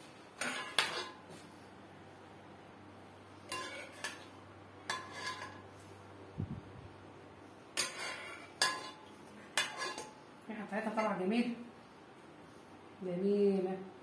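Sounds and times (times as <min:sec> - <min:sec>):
spoon scraping ceramic dishes: 0:00.4 - 0:01.2, 0:03.5 - 0:04.3, 0:04.9 - 0:05.6, 0:07.8 - 0:10.2.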